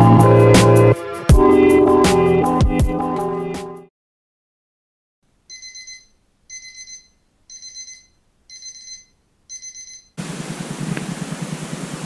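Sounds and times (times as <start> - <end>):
phone alarm beeping: 5.5 - 10.2.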